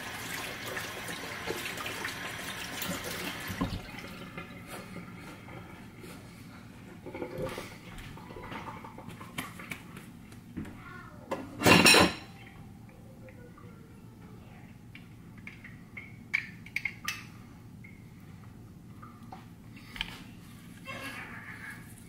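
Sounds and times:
dishes and utensils clattering: 6.9s - 9.4s, 11.3s - 12.5s.

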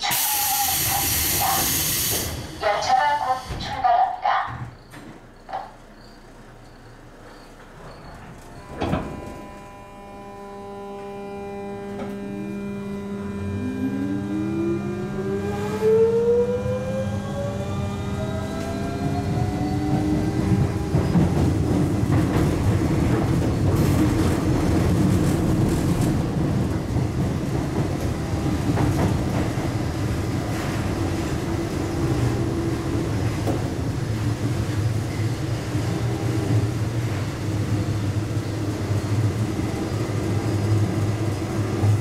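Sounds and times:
train wheels on rail: 0.0s - 9.7s, 15.3s - 42.0s
traction motors whining: 6.0s - 22.1s.

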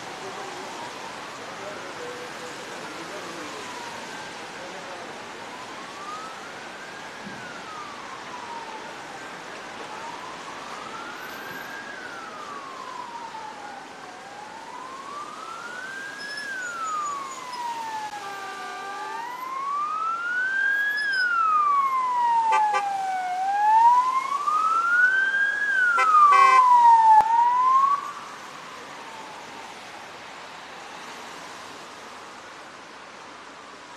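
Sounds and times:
siren wailing: 5.5s - 29.9s
short steady siren tone: 25.9s - 27.3s.

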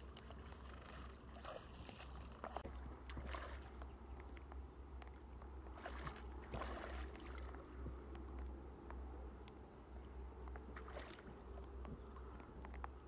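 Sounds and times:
feet wading through water: 0.0s - 8.2s, 10.4s - 12.4s.

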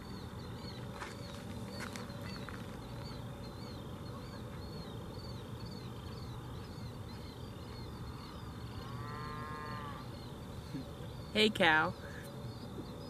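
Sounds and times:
high chirping calls: 0.0s - 13.0s
low steady background: 0.0s - 13.0s
cow mooing: 9.0s - 10.1s.

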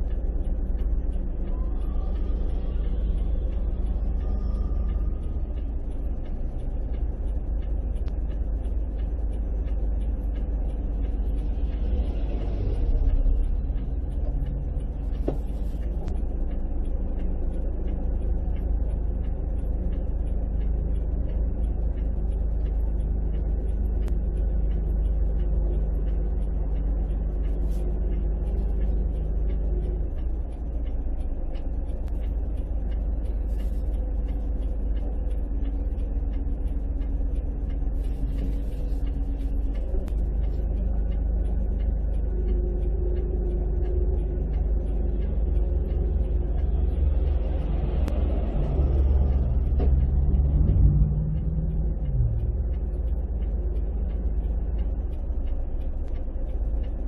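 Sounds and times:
engine hum: 0.0s - 57.0s
road vehicle rumble: 0.0s - 57.0s.

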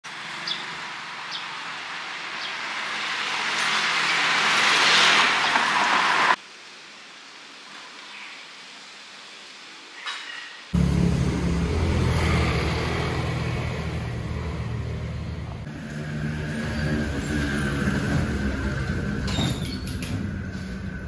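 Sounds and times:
street background: 0.0s - 6.4s, 10.0s - 21.0s
car driving by: 1.9s - 6.4s, 10.8s - 19.3s.

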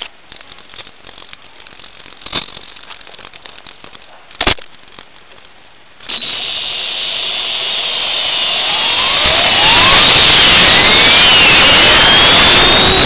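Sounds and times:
electric motor whine rising: 6.1s - 13.0s.

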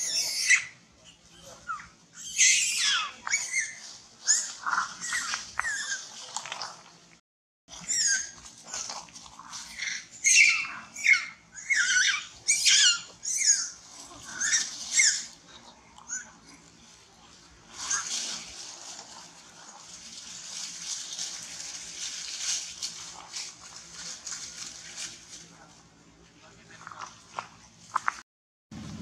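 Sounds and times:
monkeys screaming: 0.0s - 0.8s, 1.4s - 6.2s, 7.7s - 8.9s, 9.5s - 15.4s, 17.7s - 18.5s.

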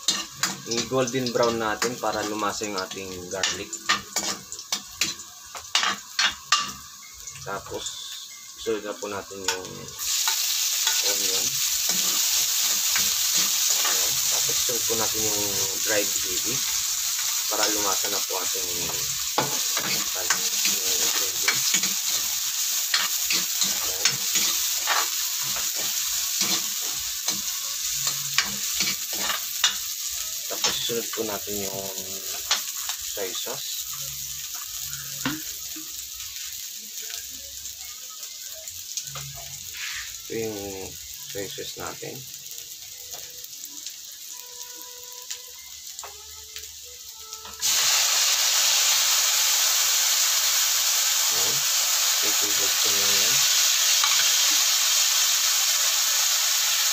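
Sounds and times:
garlic and onion sizzling in oil: 0.0s - 56.9s
spatula scraping a wok: 18.9s - 29.9s, 39.7s - 40.2s.

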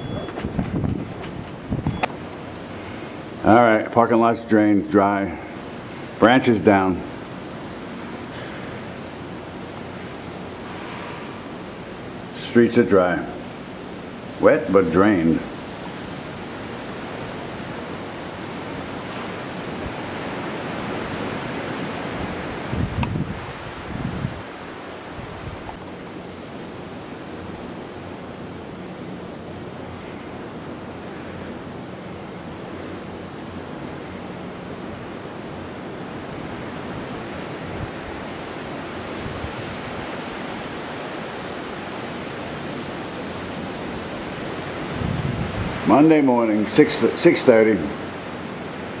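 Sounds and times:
wind buffeting microphone: 0.0s - 2.1s, 20.9s - 25.8s, 44.7s - 46.0s
strong wind through palm trees: 0.0s - 49.0s.

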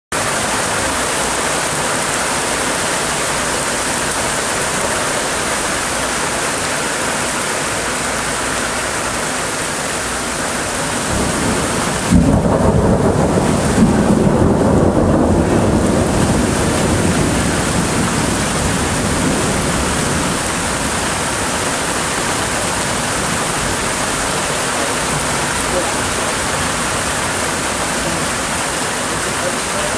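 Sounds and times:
heavy rain: 0.1s - 29.9s
thunderclap and rumble: 10.9s - 29.3s.

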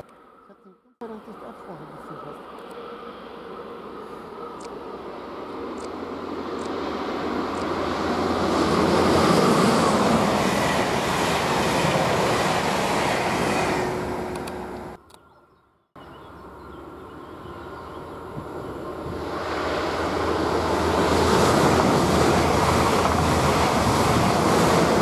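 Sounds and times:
distant train rumble: 0.3s - 15.0s, 16.0s - 25.0s
train wheels rushing on rails: 4.8s - 15.0s, 18.3s - 25.0s.

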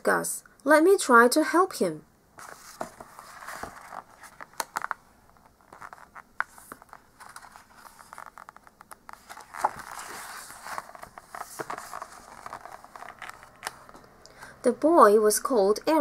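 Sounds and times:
paper page turning: 2.4s - 14.0s
book handling clicks and taps: 2.4s - 14.2s.

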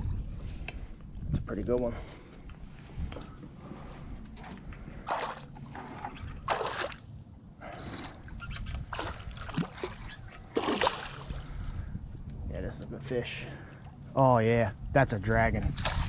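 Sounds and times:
fish splashing at water surface: 5.0s - 5.5s, 6.5s - 7.0s, 8.9s - 11.4s.

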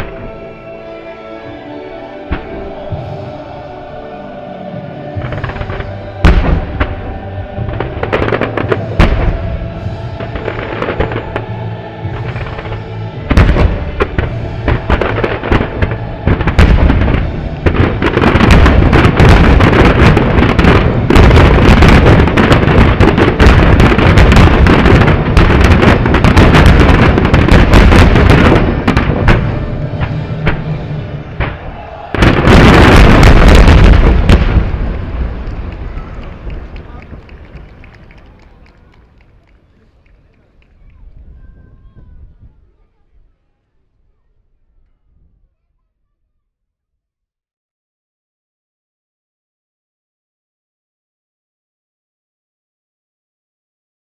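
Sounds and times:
music: 0.0s - 43.2s.

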